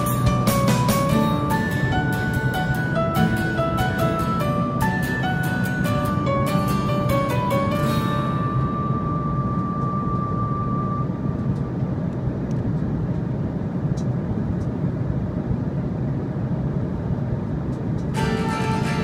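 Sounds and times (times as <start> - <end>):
background music: 0.0 - 9.9, 18.2 - 19.0
held music note: 0.0 - 11.4, 18.2 - 19.0
jet engine roar and rushing air: 0.0 - 19.0.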